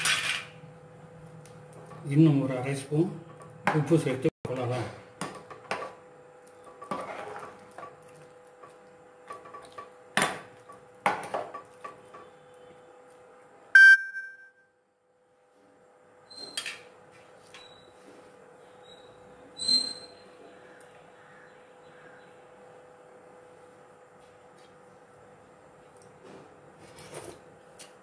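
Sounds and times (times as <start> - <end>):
ladle stirring in a pot: 6.6 - 9.9.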